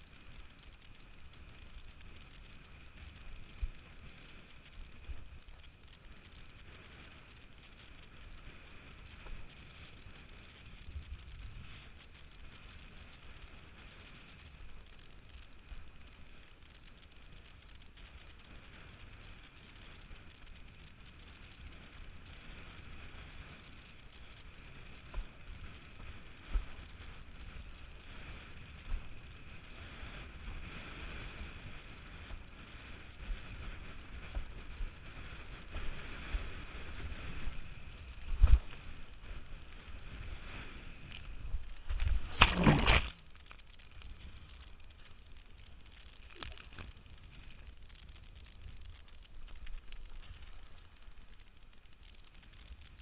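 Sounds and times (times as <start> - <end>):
wind buffeting microphone: 23.8 - 44.7
water rushing and splashing: 41.5 - 43.4.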